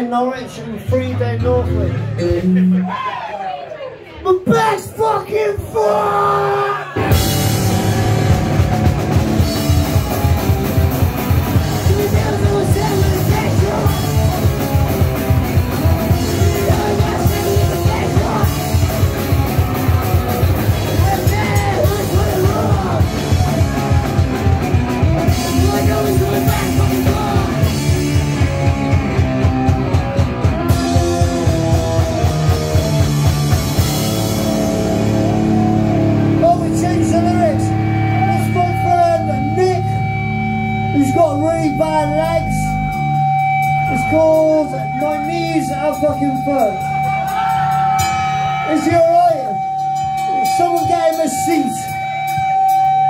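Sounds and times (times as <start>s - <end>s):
distorted electric guitars: 1.6s - 3.0s, 6.2s - 53.0s
shouted singing: 4.5s - 7.2s, 11.6s - 14.5s, 15.8s - 19.1s, 20.7s - 24.4s, 25.3s - 27.8s
drum kit: 7.0s - 53.0s.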